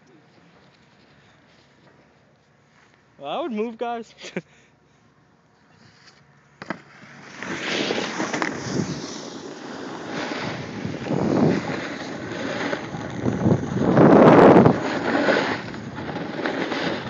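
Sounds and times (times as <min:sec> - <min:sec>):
snowboard scraping over snow: 0:06.9 - 0:17.0
wind buffeting microphone: 0:10.4 - 0:17.0.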